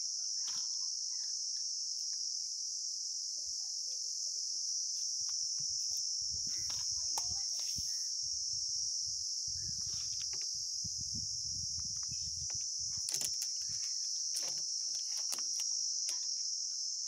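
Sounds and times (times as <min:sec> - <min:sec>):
insects chirring: 0:00.0 - 0:17.0.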